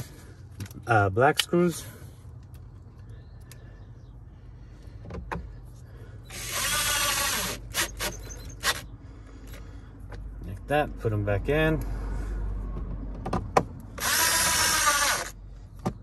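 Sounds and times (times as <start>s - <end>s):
cordless drill spinning: 6.3s - 8.9s, 14.0s - 15.4s.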